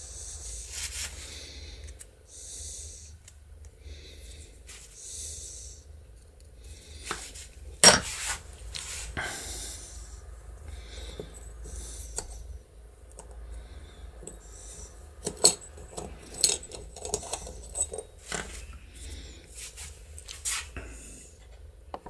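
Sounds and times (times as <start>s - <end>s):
small metal parts clinking: 14.2s - 18.6s.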